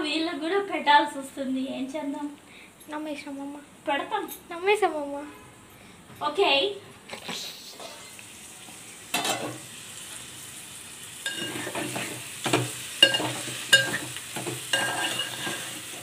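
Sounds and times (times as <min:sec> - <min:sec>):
food sizzling in a pot: 0:07.4 - 0:16.0
spatula clinking on metal pot: 0:11.2 - 0:15.8
spatula stirring and scraping: 0:11.2 - 0:16.0.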